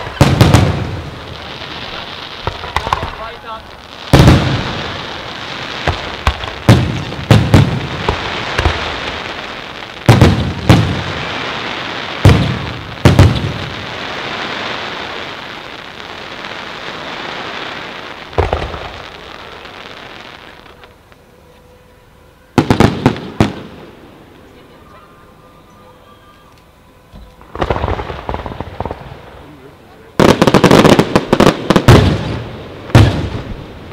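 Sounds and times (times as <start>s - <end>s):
firework bangs: 0.0s - 21.0s, 22.5s - 24.1s, 27.4s - 33.9s
firework hiss: 0.0s - 21.2s.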